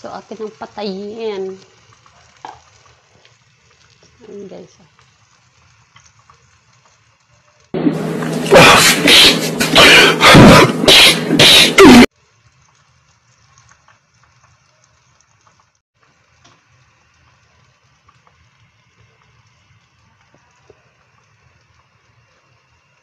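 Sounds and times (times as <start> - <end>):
man's voice in loud bursts: 8.3 - 12.0.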